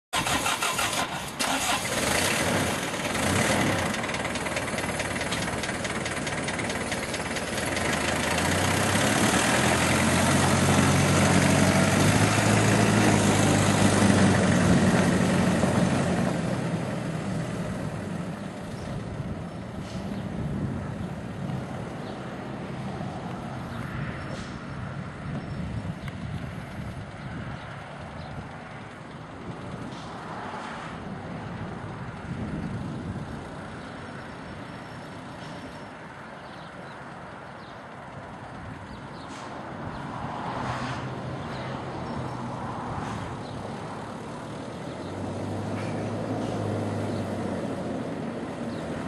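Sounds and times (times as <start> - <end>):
truck engine starting: 0.1 - 21.9, 43.4 - 49.0.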